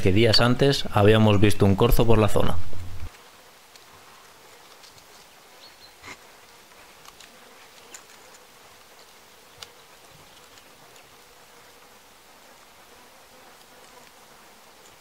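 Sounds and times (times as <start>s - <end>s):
insects buzzing: 0.0s - 15.0s
small clicks: 6.9s - 11.3s, 14.8s - 15.0s.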